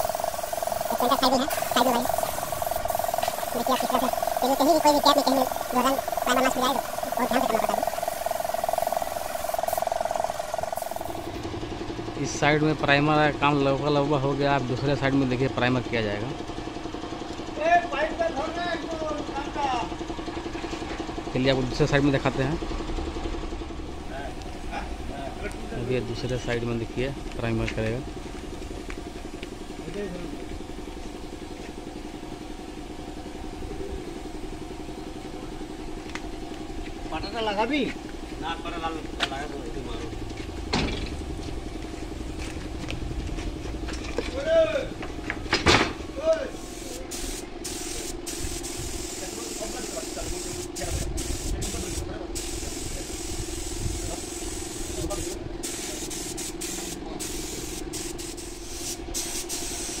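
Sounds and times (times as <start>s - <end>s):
spray gun hissing: 0.0s - 11.4s, 46.4s - 60.0s
air compressor running: 0.0s - 60.0s
steady low hum: 0.0s - 60.0s.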